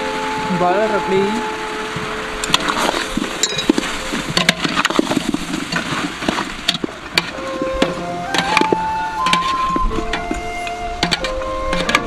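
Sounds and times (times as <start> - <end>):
steady hiss: 0.0 - 12.0
metal ladle scraping a pot: 2.4 - 6.0, 7.2 - 12.0.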